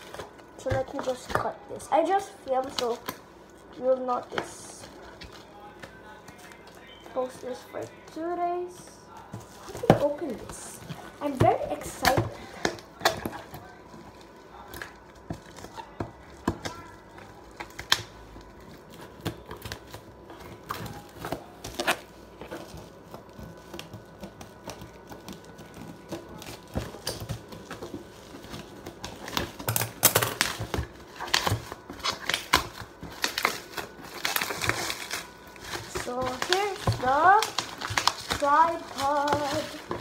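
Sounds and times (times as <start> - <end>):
scissors cutting plastic: 0.0 - 3.2, 9.1 - 40.0
plastic packaging crinkling: 0.0 - 40.0.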